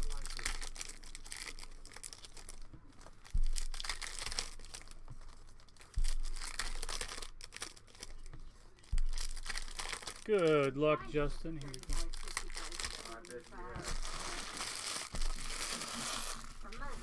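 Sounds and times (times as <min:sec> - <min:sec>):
foil wrappers crinkling and tearing: 0:00.0 - 0:17.0
dull thumps: 0:02.5 - 0:10.2.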